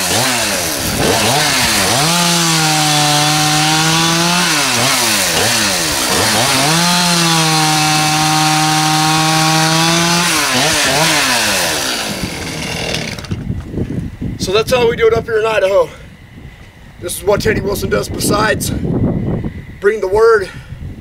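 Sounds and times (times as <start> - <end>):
chainsaw cutting logs: 0.0 - 13.6.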